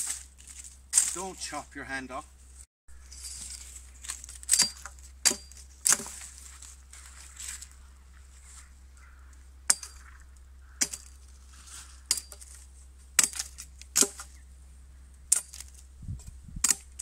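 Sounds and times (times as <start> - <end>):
machete chopping branches: 0.0 - 1.4, 3.4 - 6.7, 9.7 - 10.1, 10.8 - 11.4, 12.0 - 14.4, 15.3 - 17.0.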